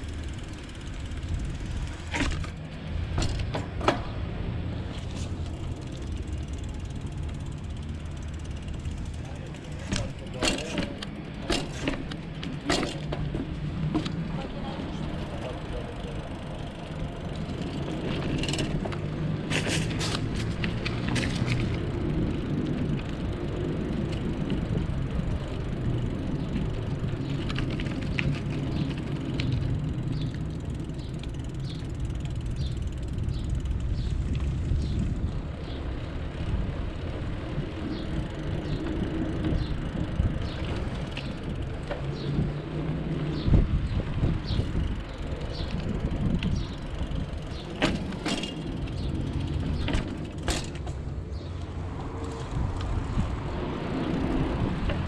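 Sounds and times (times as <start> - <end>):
bicycle riding rumble: 0.0 - 55.0
light regular ticking: 5.3 - 11.5
sharp rattles: 15.4 - 35.9, 43.3 - 52.4.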